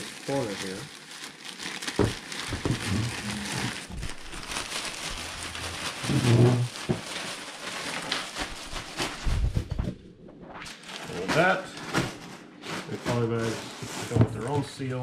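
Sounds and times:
plastic mailer bag crinkling: 0.0s - 9.5s.

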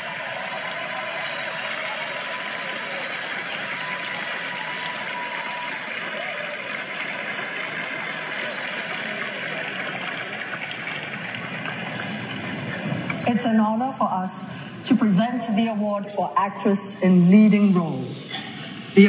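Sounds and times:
audience applause: 0.0s - 13.4s.

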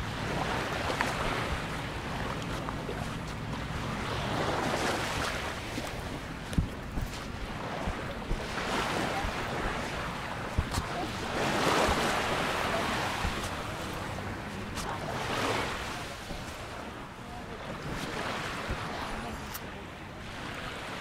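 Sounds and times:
small waves washing onto shore: 0.0s - 21.0s.

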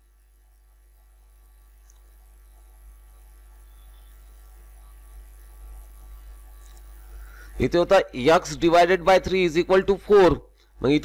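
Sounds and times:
mains hum: 0.0s - 11.0s.

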